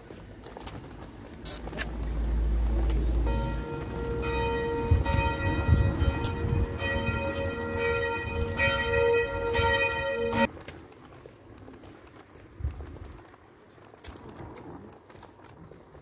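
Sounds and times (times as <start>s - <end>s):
low rumble: 1.9s - 10.5s
church bells ringing: 3.1s - 10.5s.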